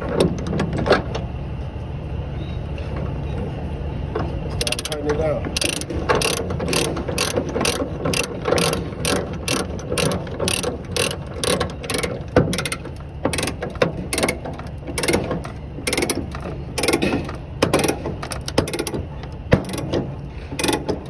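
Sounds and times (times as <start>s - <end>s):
ratchet pawl clicking: 4.6s - 5.0s, 5.6s - 17.0s, 17.7s - 19.0s, 19.6s - 19.9s, 20.5s - 21.0s.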